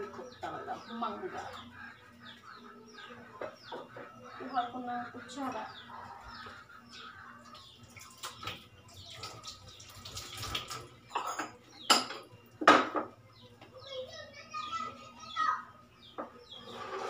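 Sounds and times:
water running into a metal sink: 7.9 - 11.0
dishes knocking against sink: 11.1 - 13.1.

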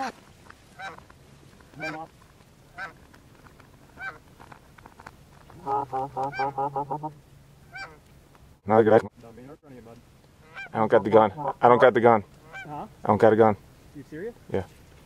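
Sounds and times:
goose honking: 0.0 - 1.0, 1.7 - 2.1, 2.7 - 3.0, 3.9 - 4.2, 5.6 - 8.1, 10.4 - 12.9.

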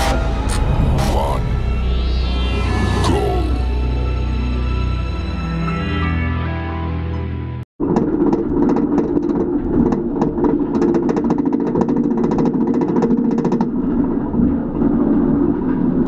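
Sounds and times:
anti-rollback rapid clacking: 7.8 - 16.0
roller coaster lift chain rumble: 7.8 - 16.0.

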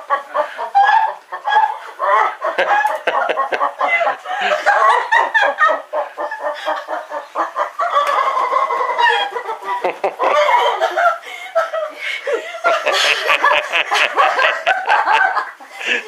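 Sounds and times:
woman laughing hard: 2.5 - 5.8, 9.0 - 16.0.

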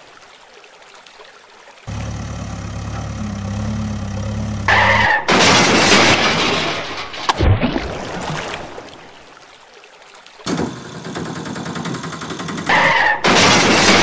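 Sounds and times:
water splashing: 0.0 - 10.5
engine hum: 1.9 - 6.0.

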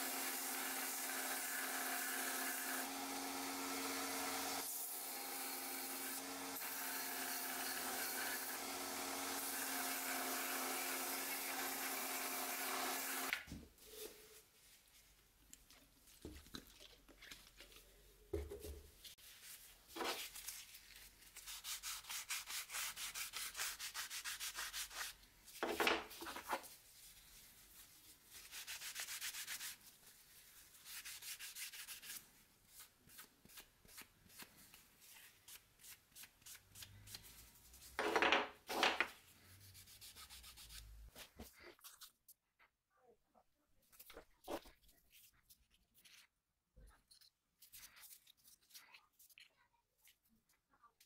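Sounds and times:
cloth rubbing on wood and steel: 19.0 - 33.2
knocks of pieces handled: 37.9 - 39.2.

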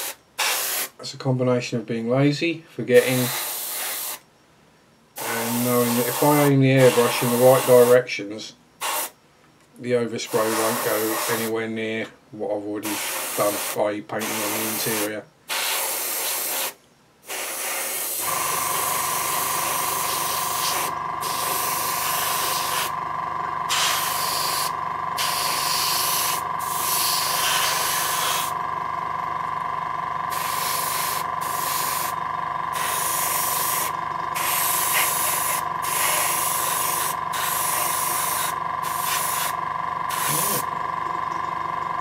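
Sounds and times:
airbrush hissing spurts: 0.0 - 1.0, 3.0 - 4.2, 5.2 - 8.0, 8.8 - 9.2, 10.3 - 11.6, 12.8 - 22.9, 23.7 - 28.6, 30.3 - 40.6
compressor humming and pulsing: 17.3 - 42.0.

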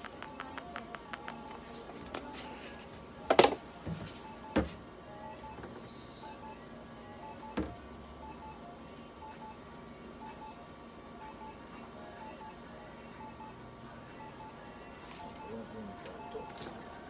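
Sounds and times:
faint steady hum: 0.0 - 17.0
short electronic beeps: 0.1 - 1.6.

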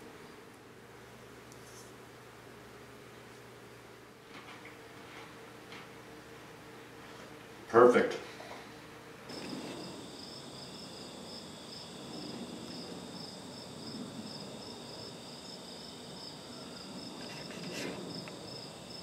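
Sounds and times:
background hiss: 4.8 - 19.0
insects trilling: 9.3 - 19.0.

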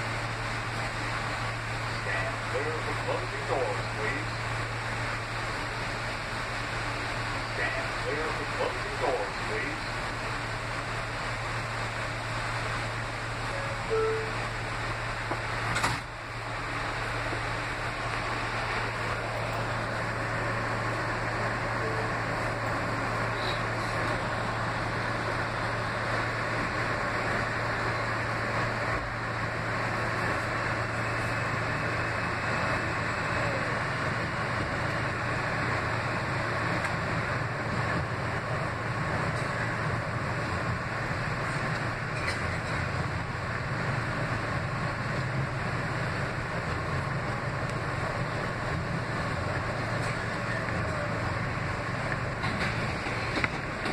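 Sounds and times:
constant low hum: 0.0 - 53.9
subway wheels rumbling on track: 0.0 - 53.9.

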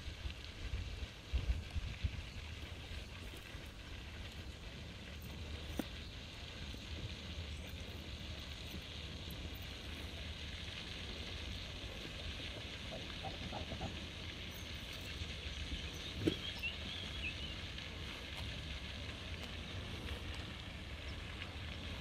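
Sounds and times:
low wind rumble on microphone: 0.0 - 22.0.

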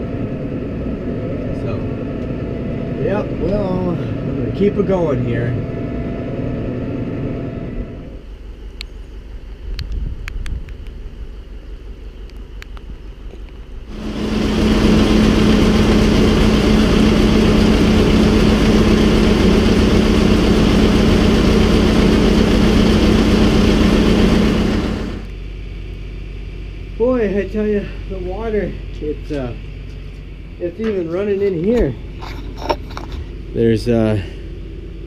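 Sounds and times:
machinery humming: 0.0 - 9.5, 11.0 - 35.0
low rumble: 13.7 - 25.7.

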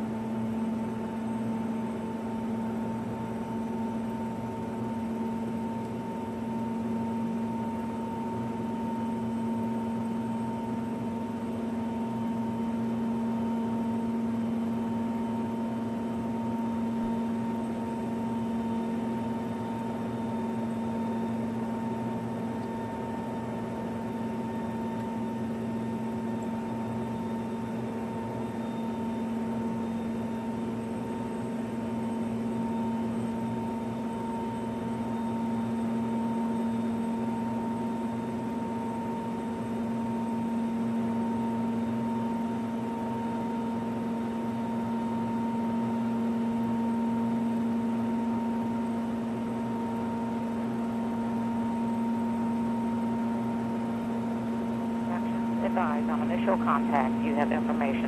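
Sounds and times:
helicopter running: 54.8 - 58.0
high whine: 55.1 - 58.0.

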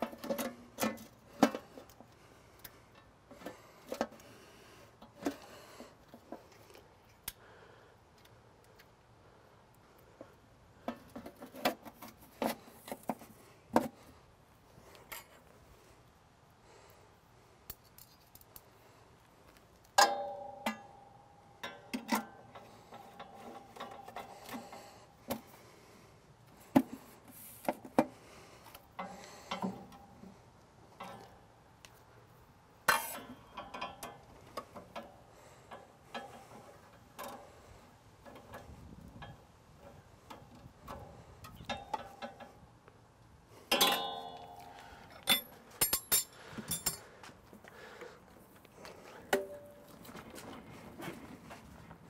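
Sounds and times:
loud ringing metal clank: 43.7 - 44.7
metal clicks and clinks: 43.7 - 47.1.

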